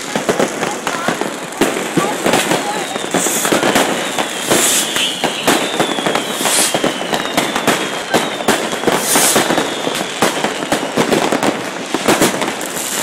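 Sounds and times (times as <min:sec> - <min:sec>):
fireworks bangs and crackles: 0:00.0 - 0:13.0
high hisses: 0:02.9 - 0:05.4, 0:06.2 - 0:07.0
falling high whistles: 0:03.1 - 0:11.0.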